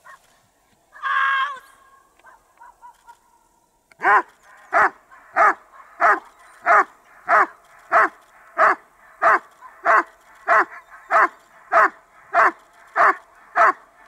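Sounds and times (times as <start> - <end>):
dog barking: 2.2 - 3.2, 4.0 - 13.9.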